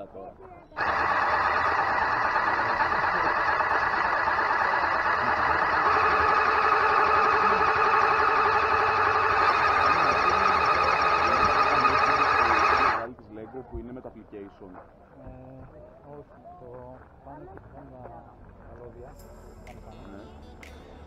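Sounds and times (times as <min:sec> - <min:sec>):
electric motors and gears whining: 0:00.8 - 0:13.1.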